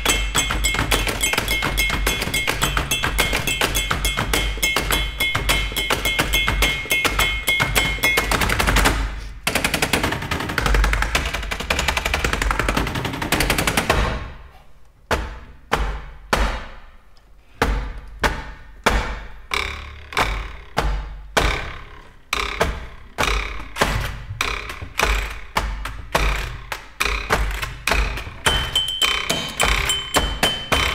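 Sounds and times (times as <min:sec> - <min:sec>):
sharp ringing knocks: 0:00.0 - 0:09.0, 0:28.4 - 0:30.9
laptop keyboard typing clatter: 0:00.0 - 0:13.9, 0:27.4 - 0:30.9.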